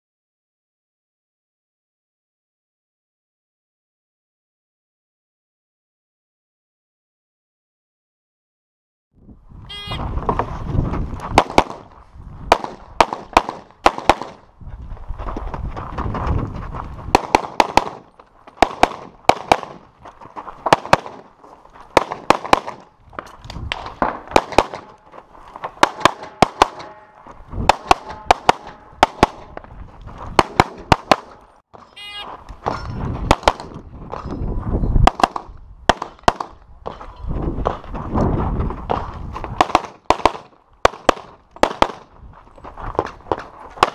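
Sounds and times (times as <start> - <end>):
pistol shots: 11.4 - 11.9, 12.5 - 14.4, 17.1 - 19.8, 20.7 - 21.3, 22.0 - 22.9, 23.7 - 25.0, 25.8 - 27.1, 27.7 - 29.6, 30.4 - 31.4, 33.3 - 33.8, 35.1 - 36.6, 39.6 - 42.0.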